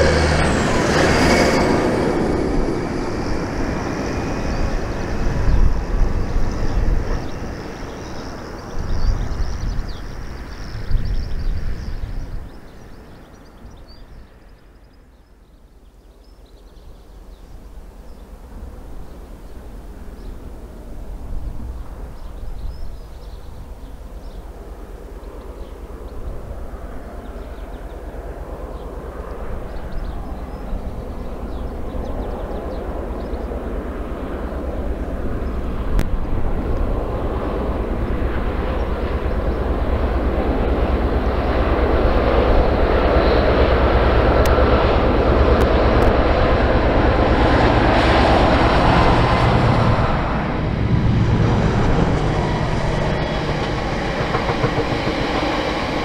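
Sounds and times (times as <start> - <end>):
freight wagons rumbling past: 0.0 - 11.2, 28.8 - 56.0
diesel locomotive engine drone: 0.0 - 56.0.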